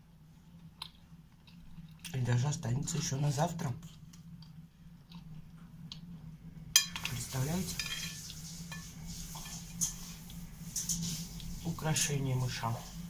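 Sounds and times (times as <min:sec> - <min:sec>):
teaspoon scraping china plate: 0:07.7 - 0:11.5.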